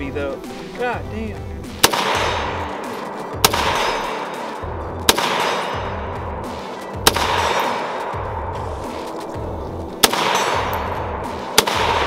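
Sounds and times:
background music: 0.0 - 12.0
rifle shots: 1.7 - 9.2, 10.0 - 12.0.

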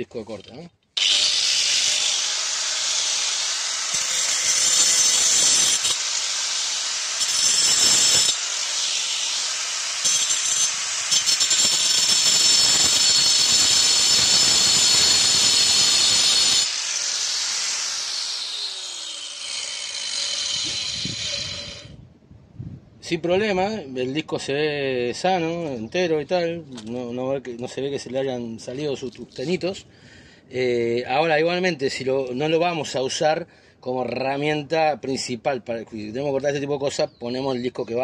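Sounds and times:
angle grinder cutting nails: 1.0 - 21.9.

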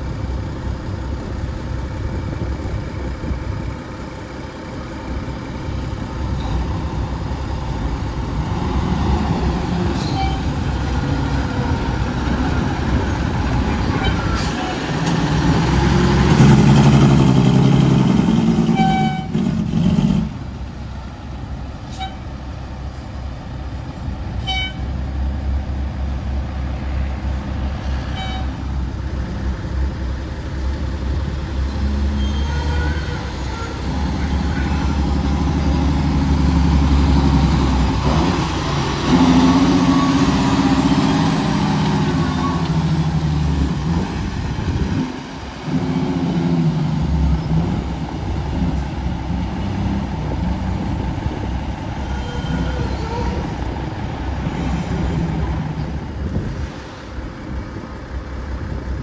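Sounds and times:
dump truck engines: 0.0 - 59.0.

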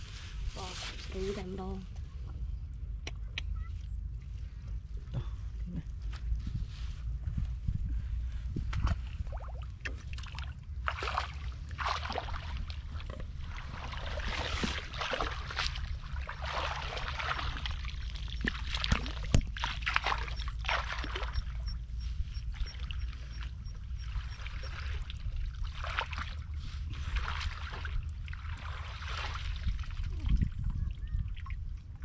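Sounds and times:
water sloshing and splashing: 8.6 - 32.0.

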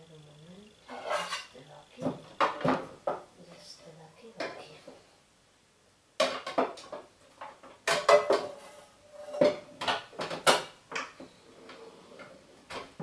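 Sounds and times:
pots and pans clattering: 0.9 - 3.2, 6.2 - 13.0.

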